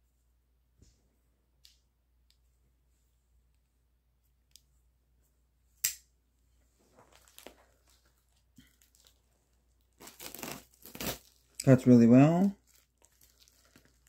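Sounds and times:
plastic mailer rustling and crinkling: 6.8 - 14.0.

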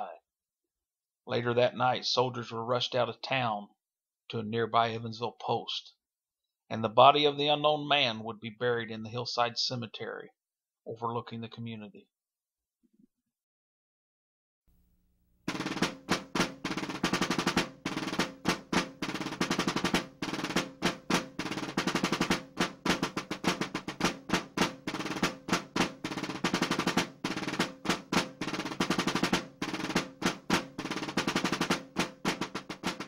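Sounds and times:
snare drum rolls: 15.5 - 33.0.

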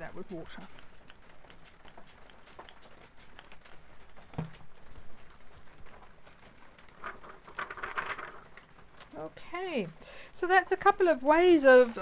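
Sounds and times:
plastic film crinkling: 0.5 - 9.2
spray bottle squirts: 1.4 - 3.6.

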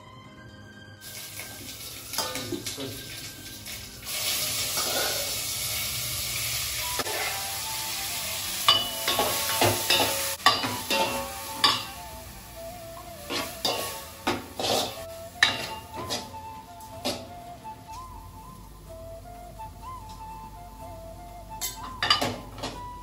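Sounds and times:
food sizzling in a pan: 1.0 - 17.3
metal spoon scraping a pan: 4.6 - 5.5, 7.0 - 7.5, 8.7 - 11.9, 13.2 - 16.3.

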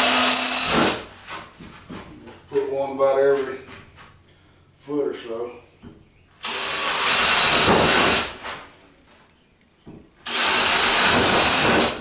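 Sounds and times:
cordless drill boring into wood: 0.0 - 1.1, 6.4 - 8.4, 10.2 - 12.0.

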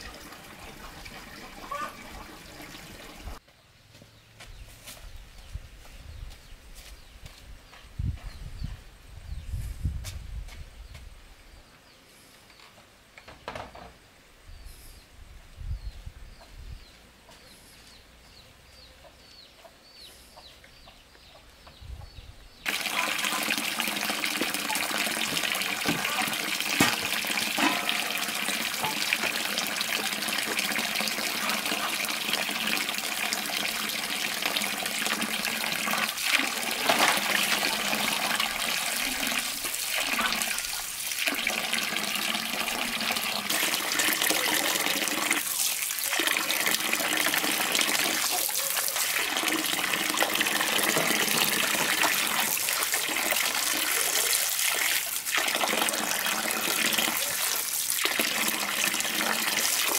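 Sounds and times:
water pouring into metal basin: 0.0 - 3.3, 22.7 - 59.9.

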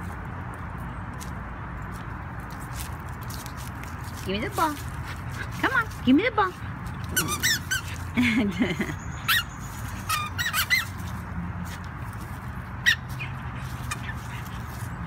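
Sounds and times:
squeaky ball squeaking: 7.1 - 8.0, 9.0 - 11.0.

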